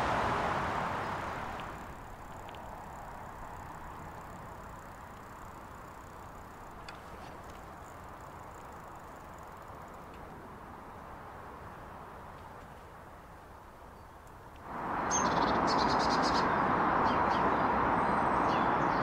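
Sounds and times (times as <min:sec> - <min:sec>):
bicycle tyres rolling hiss: 0:00.0 - 0:19.0
light clicks: 0:01.5 - 0:06.1.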